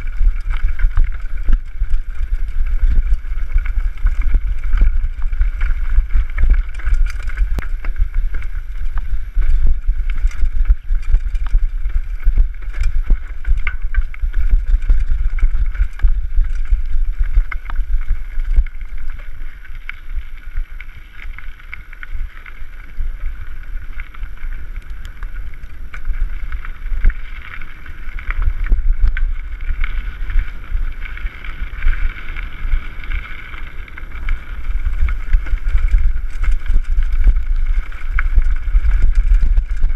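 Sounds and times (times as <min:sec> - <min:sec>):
bike rattling and clicking: 0:00.0 - 0:39.9
wind buffeting microphone: 0:24.3 - 0:39.9.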